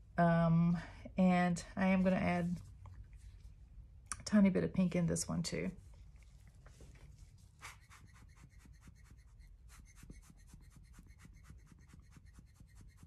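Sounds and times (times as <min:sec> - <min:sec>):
light rapid tapping and scratching: 0:06.6 - 0:13.0.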